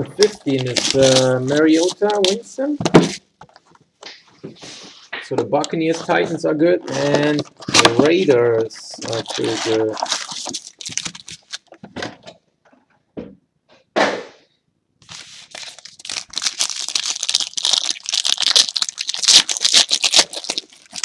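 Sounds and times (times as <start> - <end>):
wrapper crinkling and tearing: 0.2 - 2.6, 6.9 - 11.7, 15.0 - 21.0
wrapper rustling: 0.2 - 2.8, 6.9 - 11.8, 15.0 - 21.0.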